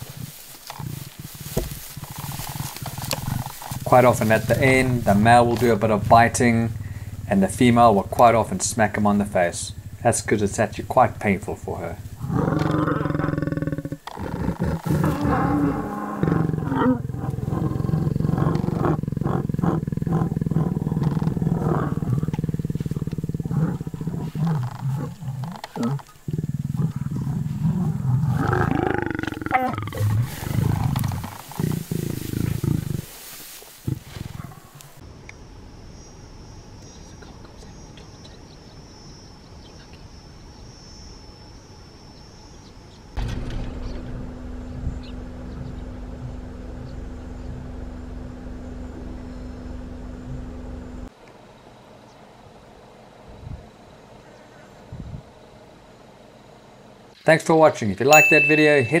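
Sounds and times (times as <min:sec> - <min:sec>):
lion growling: 0:00.0 - 0:35.0, 0:44.6 - 0:50.9
low outdoor rumble: 0:00.0 - 0:39.7, 0:43.1 - 0:57.2
high insect buzz: 0:00.0 - 0:42.4
steady hum: 0:02.6 - 0:13.8, 0:43.2 - 0:57.2.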